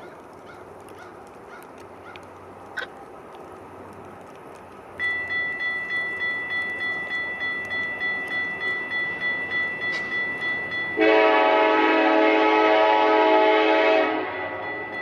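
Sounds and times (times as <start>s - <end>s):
level crossing warning bell: 5.0s - 12.8s, 13.4s - 15.0s.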